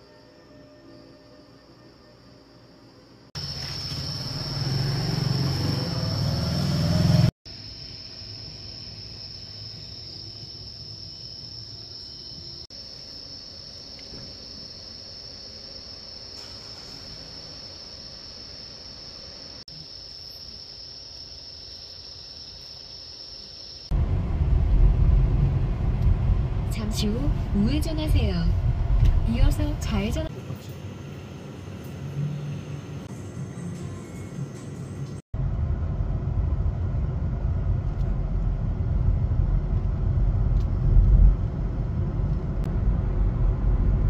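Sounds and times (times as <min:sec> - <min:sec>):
crickets trilling: 0:00.0 - 0:24.0
vehicle engine revving: 0:03.8 - 0:07.4
car interior road rumble: 0:23.9 - 0:30.6, 0:35.4 - 0:44.0.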